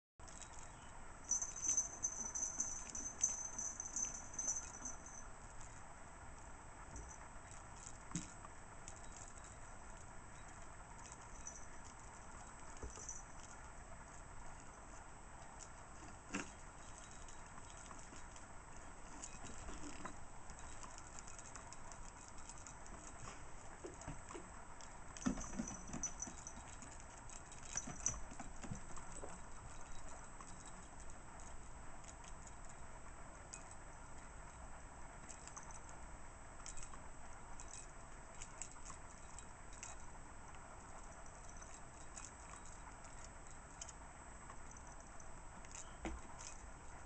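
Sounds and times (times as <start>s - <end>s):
bell jingling in toy ball: 0.2s - 5.8s, 8.9s - 13.7s, 16.5s - 23.2s, 24.8s - 31.6s, 40.9s - 44.0s
kittens batting toys: 0.2s - 33.9s.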